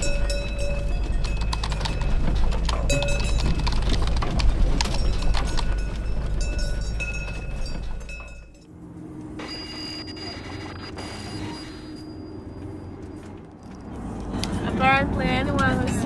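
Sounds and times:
hooves clopping on paved road: 0.0s - 8.7s
van engine idling: 0.0s - 10.9s
van cabin hum while driving: 0.0s - 16.0s.

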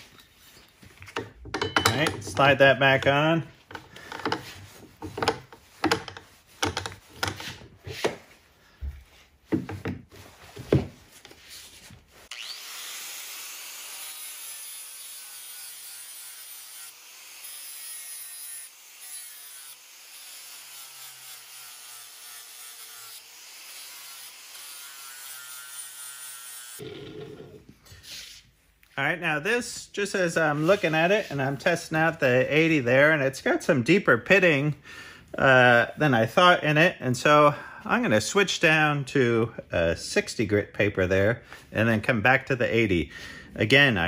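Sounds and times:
knocks and clatters handling axe head: 0.0s - 11.4s
angle grinder grinding steel: 12.2s - 27.7s.

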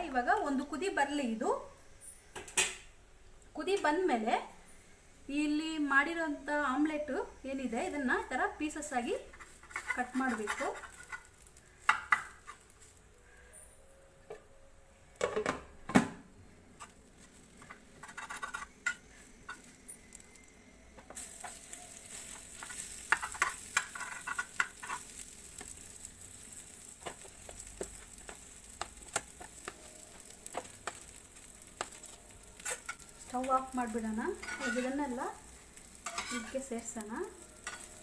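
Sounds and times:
food sizzling: 0.0s - 14.4s, 16.4s - 38.0s
spatula scraping on griddle: 9.2s - 13.0s, 16.8s - 20.2s, 21.1s - 38.0s.

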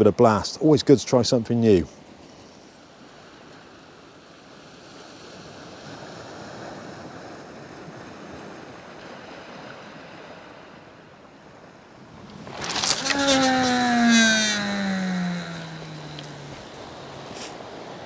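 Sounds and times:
waves washing on shingle: 12.3s - 13.1s
fishing rod cast swish: 12.3s - 17.6s.

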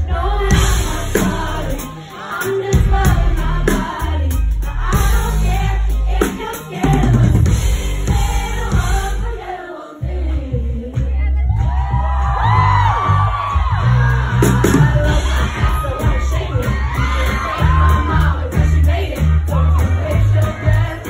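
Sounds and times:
woman singing: 0.0s - 11.8s, 14.5s - 21.0s
live pop band playing: 0.0s - 21.0s.

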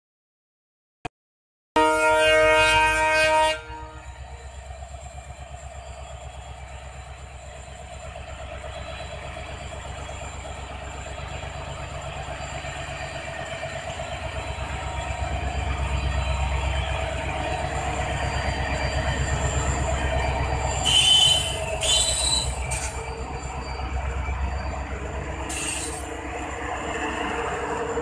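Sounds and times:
diesel locomotive engine rumbling: 1.8s - 28.0s
train coaches clattering: 4.4s - 28.0s
high-pitched wheel squeals: 16.5s - 26.2s.

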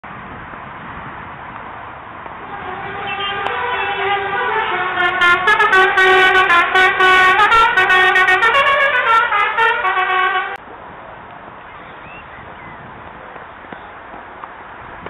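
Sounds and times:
horn playing a tune: 2.4s - 10.6s.

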